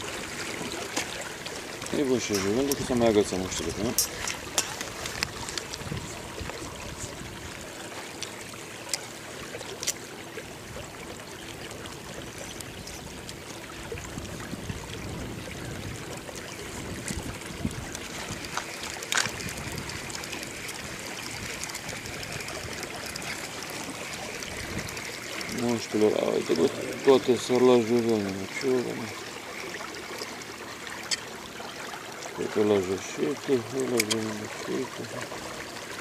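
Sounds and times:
water lapping against boat: 0.0s - 36.0s.

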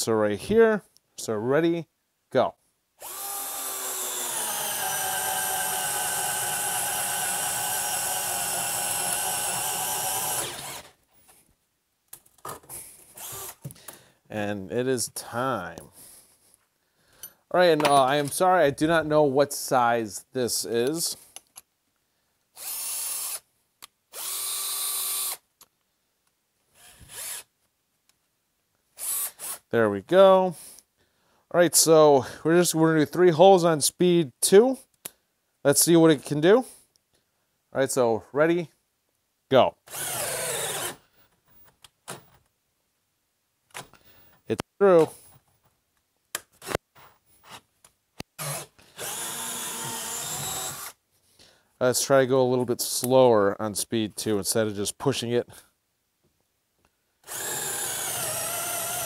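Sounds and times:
cordless drill spinning: 3.0s - 11.2s, 13.2s - 13.7s, 22.6s - 23.4s, 24.1s - 25.4s, 26.8s - 27.5s, 29.0s - 29.6s, 39.9s - 42.2s, 48.4s - 51.0s, 57.2s - 59.0s.

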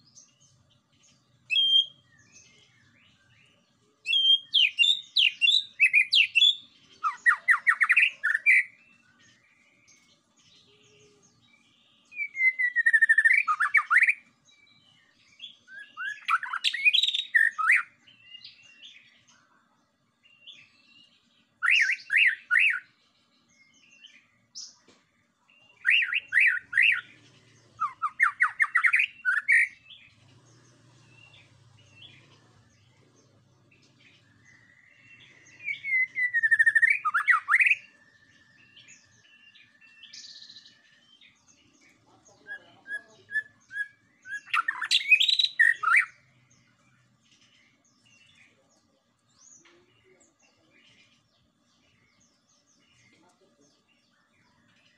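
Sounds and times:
bird singing warbled phrases: 0.0s - 54.9s
thin level bird whistle: 1.5s - 3.4s, 4.1s - 9.5s, 10.6s - 19.1s, 20.3s - 22.9s, 25.7s - 27.1s, 34.2s - 41.4s, 43.0s - 46.2s.

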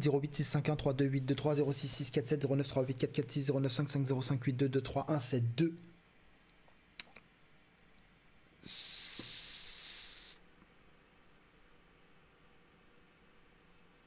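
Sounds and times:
mouth click: 7.0s - 7.3s, 8.8s - 10.3s
man drawing hissing breath: 8.6s - 10.5s.

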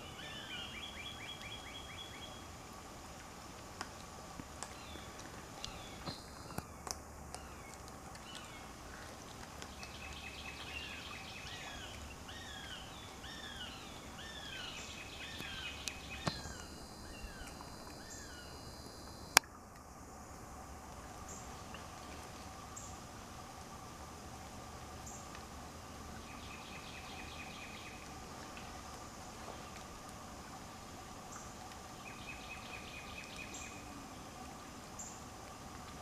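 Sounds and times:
high insect drone: 4.8s - 6.7s, 10.3s - 35.3s
bird singing down-slurred notes: 9.9s - 19.4s.

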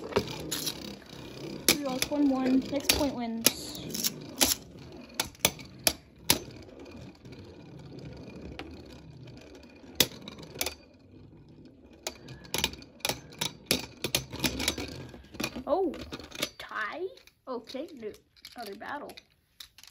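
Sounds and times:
spinning tops clacking together: 0.0s - 6.5s
spinning tops whirring: 0.0s - 18.9s.

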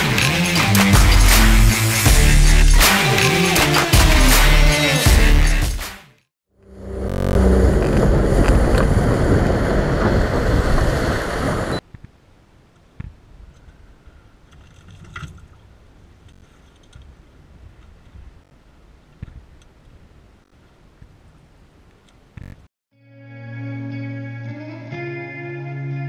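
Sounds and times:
wind on microphone: 7.4s - 11.9s
boat hull and water spray rushing: 7.5s - 11.8s
quiet wind and water: 7.5s - 22.5s.

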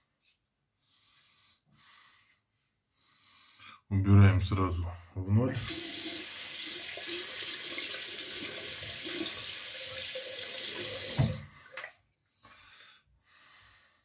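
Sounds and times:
tap water running into sink: 5.6s - 11.9s
tap shut off knock: 11.1s - 11.4s.

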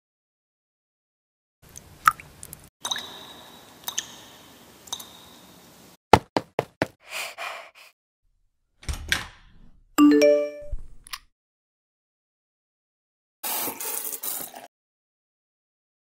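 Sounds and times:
water dripping in sink: 2.1s - 4.2s
knocks on a door: 6.1s - 7.0s
phone notification chime: 10.0s - 10.8s.

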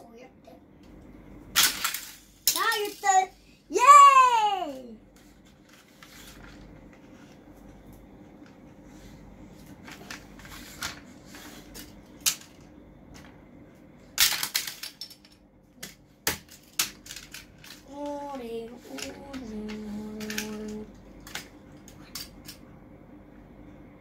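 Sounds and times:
faint steady hum: 0.0s - 24.0s
plastic toys clicking and clattering: 1.5s - 3.3s, 9.8s - 13.3s, 14.2s - 22.6s.

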